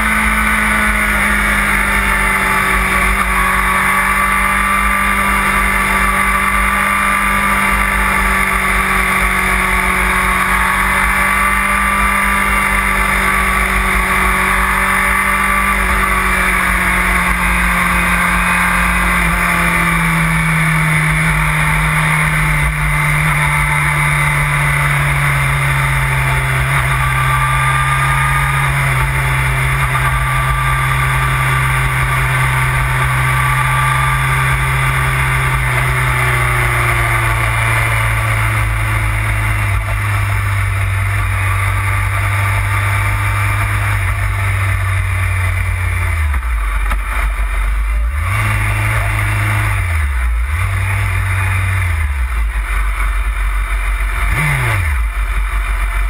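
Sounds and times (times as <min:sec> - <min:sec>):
motorcycle engine: 0:00.0 - 0:56.0.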